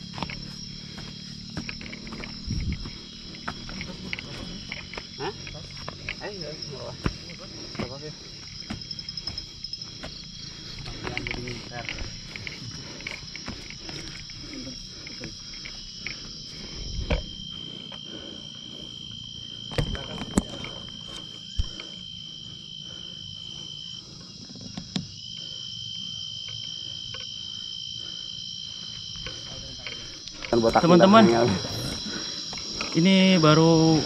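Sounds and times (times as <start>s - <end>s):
footsteps on dirt trail: 0.0s - 22.8s, 28.8s - 33.2s
night insects trilling: 0.0s - 34.0s.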